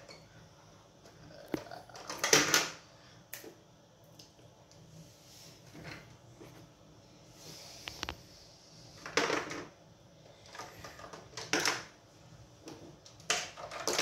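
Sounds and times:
plastic bricks clicking together: 0:13.2 - 0:14.0
plastic bricks rattling: 0:13.3 - 0:14.0.

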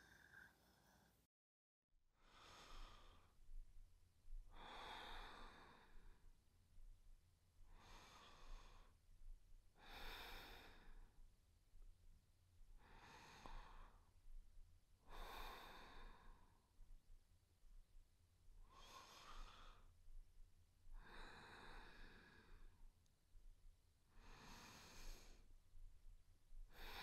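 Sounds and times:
woman breathing softly: 0:00.0 - 0:01.3, 0:02.2 - 0:03.7, 0:04.3 - 0:06.4, 0:07.6 - 0:09.1, 0:09.7 - 0:11.3, 0:12.8 - 0:14.4, 0:15.0 - 0:16.8, 0:18.6 - 0:20.2, 0:20.9 - 0:22.9, 0:24.1 - 0:25.9, 0:26.6 - 0:27.0.

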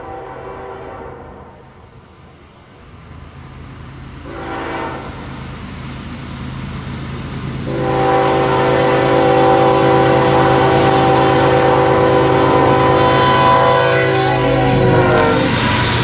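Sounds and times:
locomotive air horn blasts: 0:00.0 - 0:01.5, 0:04.3 - 0:05.2, 0:07.7 - 0:16.0.

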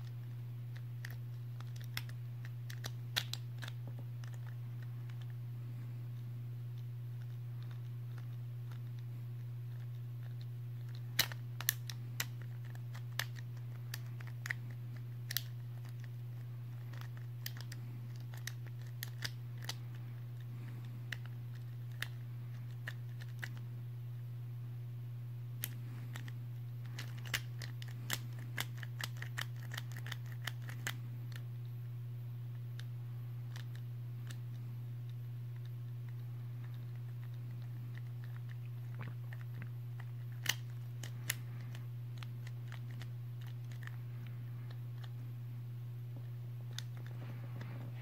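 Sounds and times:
steady low hum: 0:00.0 - 0:48.0
sharp plastic clicks: 0:00.7 - 0:05.3, 0:09.8 - 0:16.1, 0:40.0 - 0:44.0.

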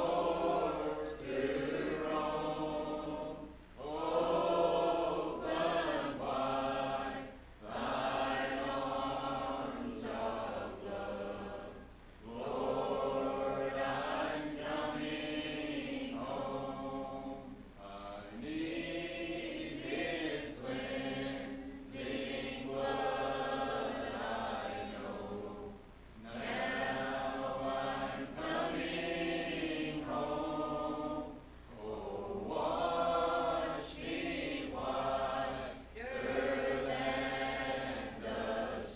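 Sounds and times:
congregation singing a hymn: 0:00.0 - 0:38.9.

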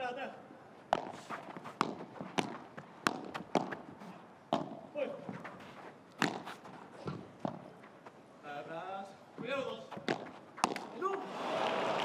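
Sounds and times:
ball bouncing on court: 0:00.9 - 0:03.9, 0:04.5 - 0:05.5, 0:06.2 - 0:07.7, 0:09.4 - 0:11.0
ball popping off rackets: 0:00.9 - 0:03.9, 0:06.1 - 0:07.7, 0:09.9 - 0:11.0.

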